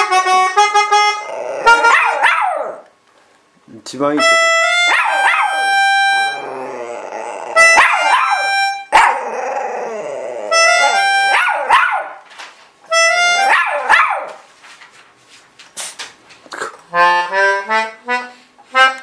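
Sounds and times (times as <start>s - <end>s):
organ playing reedy notes: 0.0s - 2.1s, 4.2s - 6.6s, 10.5s - 11.5s, 12.9s - 13.6s, 17.0s - 19.0s
dog howling: 1.1s - 2.9s, 4.9s - 12.1s.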